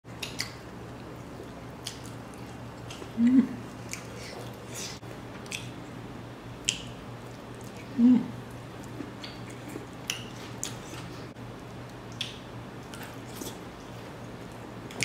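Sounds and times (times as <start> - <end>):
man chewing and smacking: 0.1 - 4.7, 5.4 - 5.8, 6.6 - 15.0
faint steady low hum: 0.1 - 15.0
man humming briefly: 3.2 - 3.6, 8.0 - 8.4
wet mouth clicks: 6.6 - 7.0.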